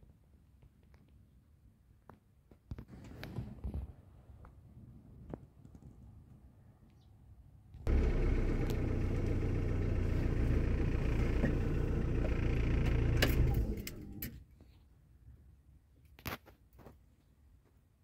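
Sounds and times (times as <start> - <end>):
vehicle engine running: 7.9 - 14.4.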